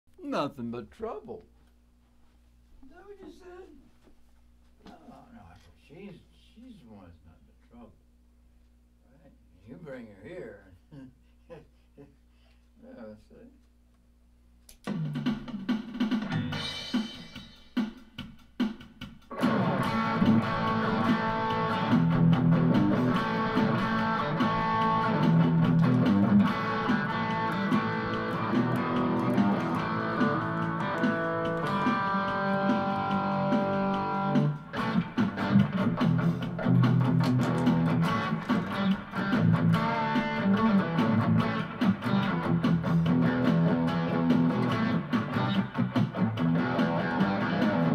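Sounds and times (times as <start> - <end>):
electric guitar playing: 19.3 - 47.9.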